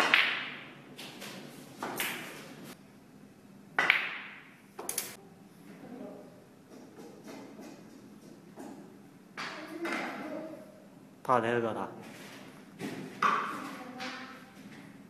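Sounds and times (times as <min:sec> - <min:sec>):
snooker balls clacking: 0:00.0 - 0:00.7, 0:03.8 - 0:05.0.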